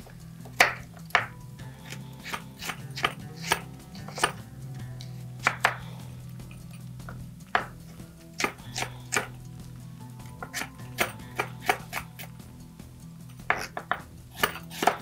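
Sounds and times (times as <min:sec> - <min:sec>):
knife chopping on wooden board: 0:00.5 - 0:04.4, 0:05.4 - 0:05.9, 0:07.5 - 0:07.8, 0:08.4 - 0:09.4, 0:10.4 - 0:12.1, 0:13.5 - 0:15.0.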